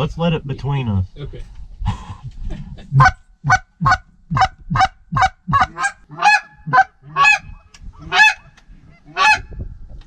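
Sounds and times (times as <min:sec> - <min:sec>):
goose honks: 0:03.0 - 0:09.5.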